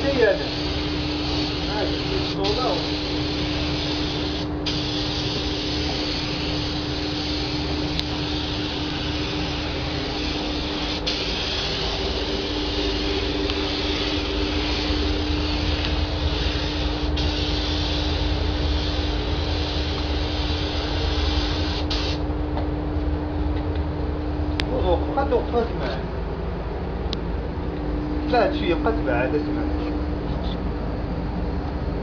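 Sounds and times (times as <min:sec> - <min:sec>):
spray gun hissing: 0:00.0 - 0:22.2
low hum: 0:03.0 - 0:32.0.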